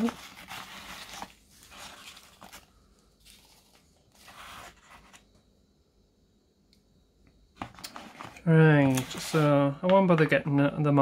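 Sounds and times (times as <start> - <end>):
plastic bottles scraping in a box: 0.0 - 2.6, 7.9 - 9.6.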